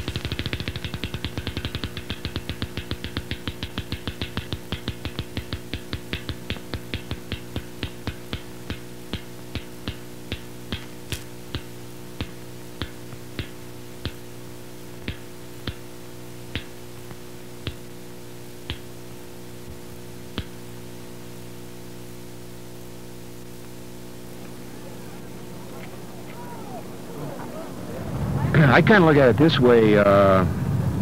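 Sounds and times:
sharp clicks slowing: 0.0s - 20.8s
electrical hum: 0.0s - 31.0s.

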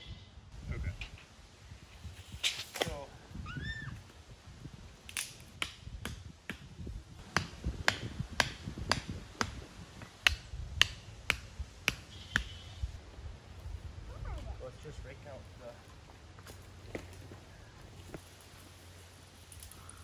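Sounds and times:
hammer driving wooden stakes: 7.2s - 12.6s.

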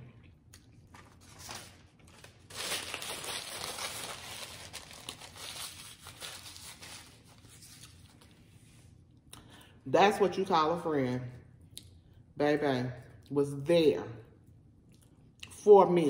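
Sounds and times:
paper napkin crinkling: 0.8s - 8.9s.

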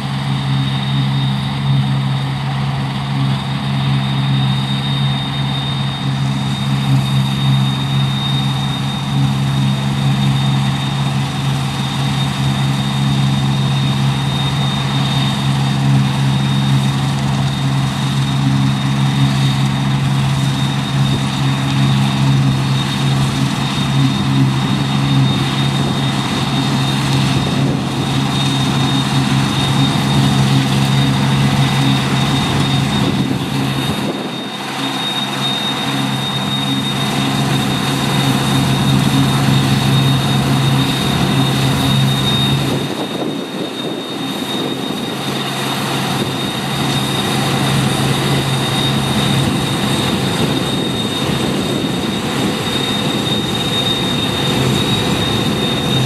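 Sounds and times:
combine harvester engine hum: 0.0s - 56.0s
constant high whine: 0.0s - 56.0s.

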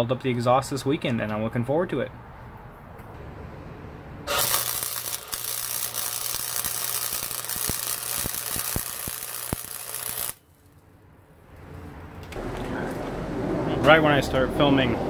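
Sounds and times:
spatter pops: 4.3s - 10.4s
welding arc crackling and hissing: 4.3s - 10.5s.

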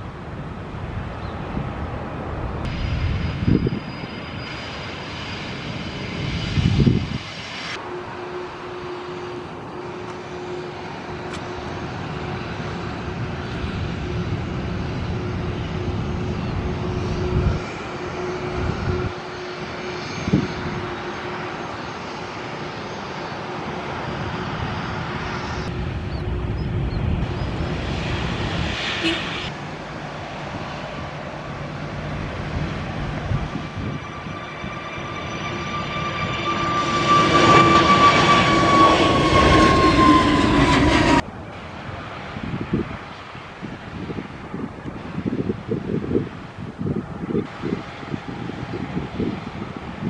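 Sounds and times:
airliner jet engines: 0.0s - 50.0s.

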